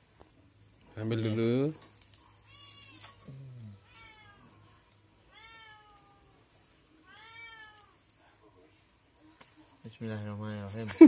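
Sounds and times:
cat meowing faintly: 2.2 - 8.1.

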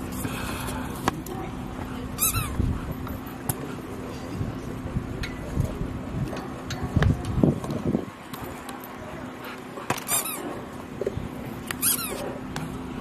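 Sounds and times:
squeaky toy squeaks: 2.2 - 2.6, 10.1 - 10.4, 11.8 - 12.2.

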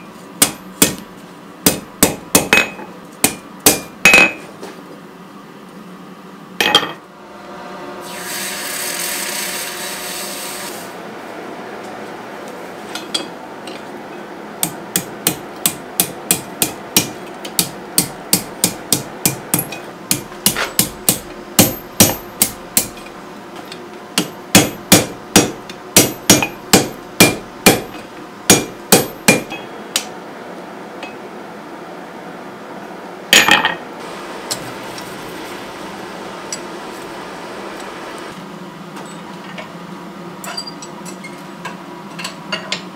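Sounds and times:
hammer striking steel on anvil: 0.4 - 1.0, 1.6 - 4.5, 14.6 - 23.1, 24.2 - 30.1.

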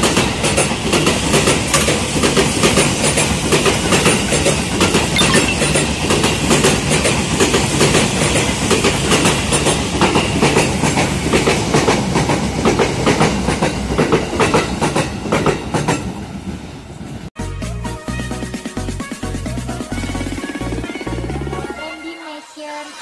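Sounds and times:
train wheels clattering over rail joints: 0.0 - 4.6, 7.2 - 16.1.

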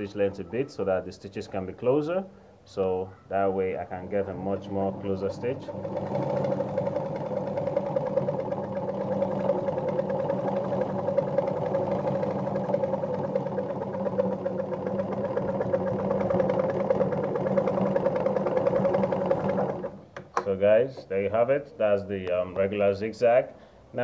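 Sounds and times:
sewing machine running: 4.3 - 20.0.

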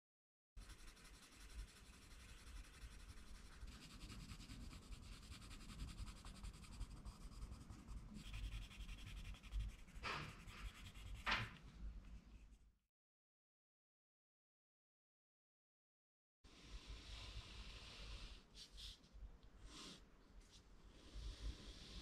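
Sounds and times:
pencil scratching on paper: 0.6 - 11.6.

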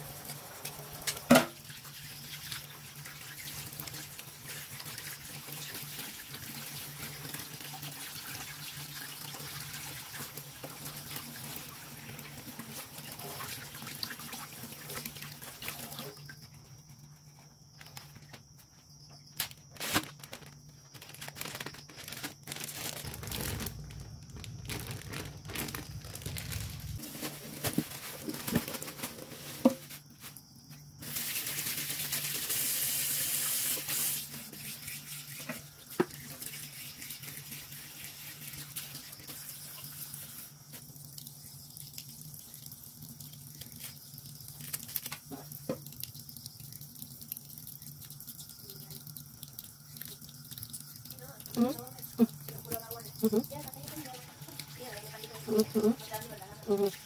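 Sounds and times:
tap water running into sink: 0.0 - 16.5, 31.0 - 57.0.

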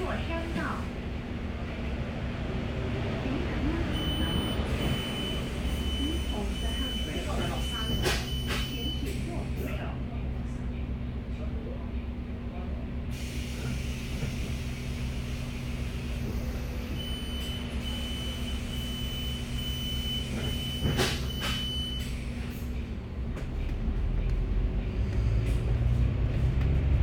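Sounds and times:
bus diesel engine droning: 0.0 - 27.0
high electronic warning beeps: 4.0 - 9.1, 17.0 - 22.0.

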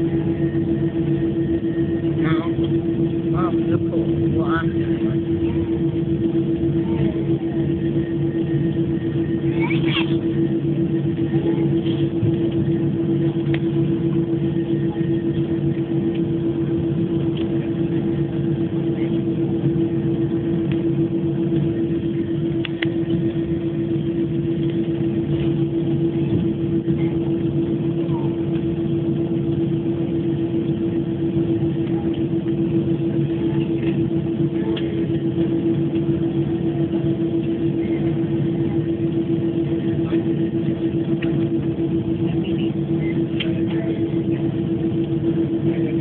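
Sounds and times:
aircraft cabin engine drone: 0.0 - 46.0
low rumble: 0.0 - 46.0
steady hum tone: 0.0 - 46.0.

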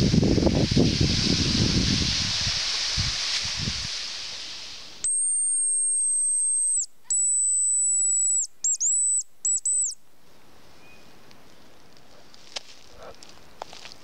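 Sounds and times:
steady hiss: 0.0 - 7.2
high thin decoy whistle: 5.0 - 10.0.

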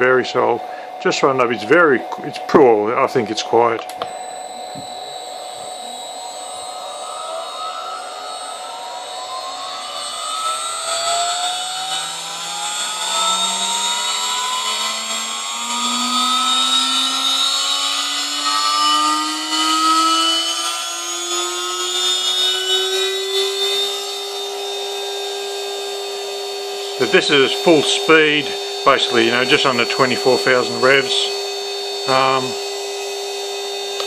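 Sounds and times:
router spindle motor whine: 0.0 - 34.0.

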